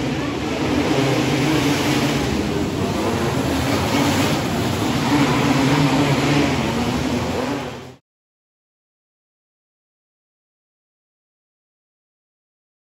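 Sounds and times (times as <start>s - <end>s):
kart engines droning: 0.0s - 8.0s.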